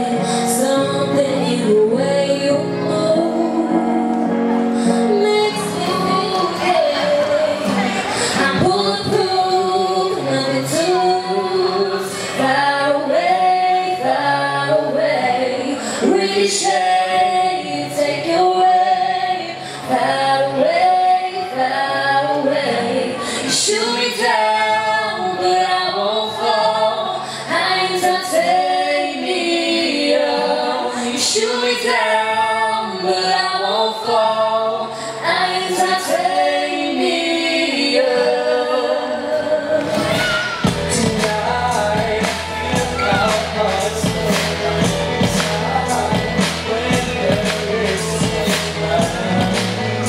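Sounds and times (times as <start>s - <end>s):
woman singing: 0.0s - 49.6s
man singing: 40.6s - 50.0s.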